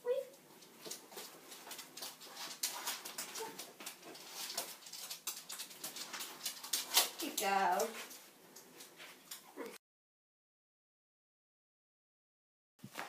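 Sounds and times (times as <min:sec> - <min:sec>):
dog claws clicking on floor: 0:00.3 - 0:09.5
dog whining: 0:03.3 - 0:03.7.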